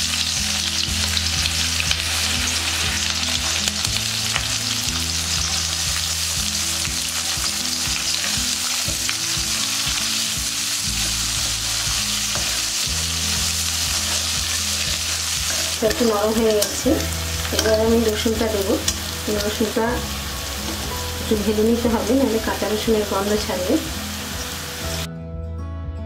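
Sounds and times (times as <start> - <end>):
onions sizzling in oil: 0.0 - 25.1
spatula scraping pan: 10.9 - 21.3.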